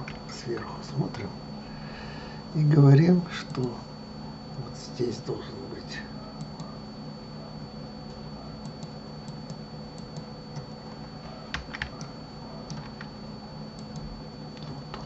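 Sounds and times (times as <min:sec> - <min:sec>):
keyboard and mouse clicks: 0:12.7 - 0:13.1.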